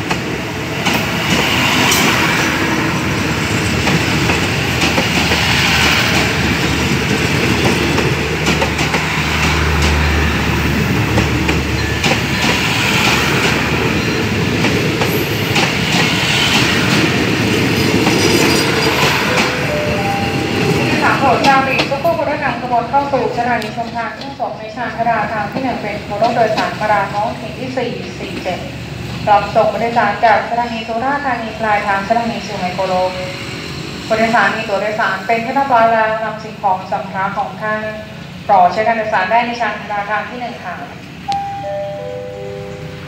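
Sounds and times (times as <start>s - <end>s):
train wheels clacking over rail joints: 3.4s - 19.6s.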